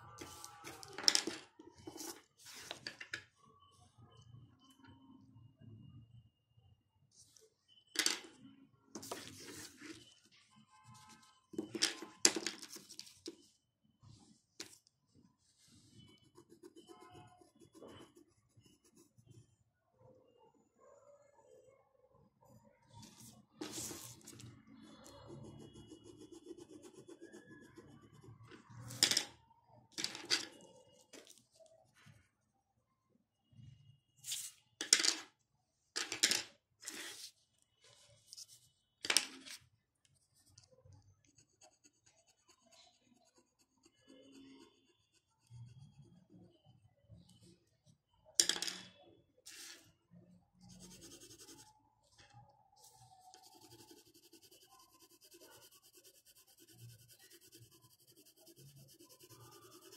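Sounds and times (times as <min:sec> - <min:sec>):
pencil scratching on paper: 0:15.7 - 0:19.4, 0:23.1 - 0:24.4, 0:25.0 - 0:29.0, 0:40.4 - 0:46.0, 0:50.7 - 0:51.7, 0:53.2 - 0:59.9.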